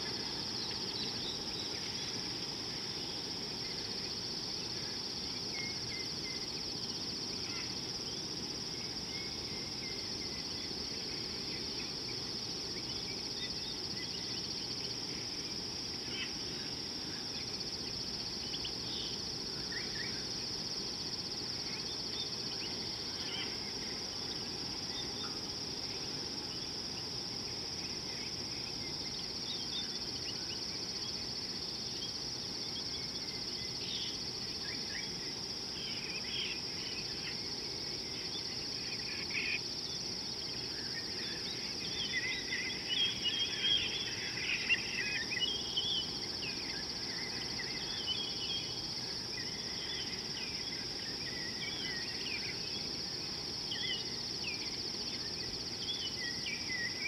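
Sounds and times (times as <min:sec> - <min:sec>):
high-pitched insect chorus: 0:00.0 - 0:57.0.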